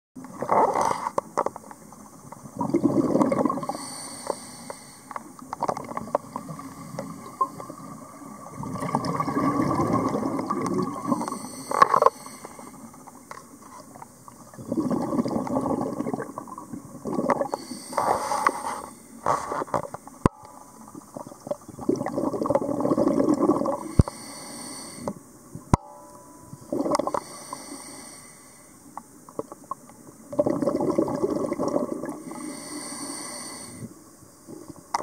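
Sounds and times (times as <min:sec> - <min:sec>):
gurgling exhaled bubbles: 0:02.4 - 0:03.8, 0:06.3 - 0:11.4, 0:14.5 - 0:18.1, 0:21.0 - 0:24.0, 0:26.6 - 0:27.3, 0:30.3 - 0:32.5.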